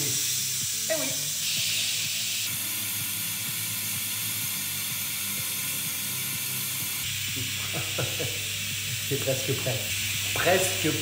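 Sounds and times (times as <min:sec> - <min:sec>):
pressure cooker steam hissing: 0:00.0 - 0:11.0.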